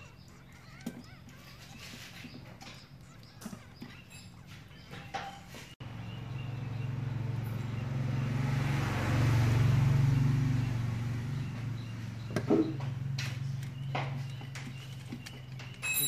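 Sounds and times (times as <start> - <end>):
vehicle passing: 5.5 - 15.8.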